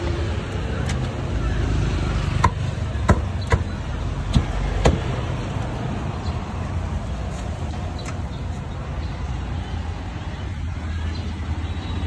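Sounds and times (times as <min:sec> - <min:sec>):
road traffic rumble: 0:00.0 - 0:12.0
cleaver chopping on wooden block: 0:02.4 - 0:03.7.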